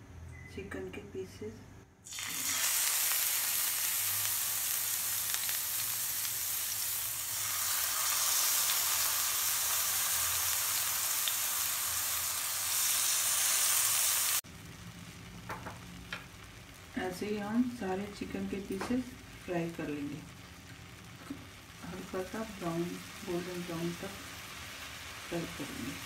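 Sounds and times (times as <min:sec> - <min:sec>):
chicken sizzling in hot oil: 0:02.0 - 0:26.0.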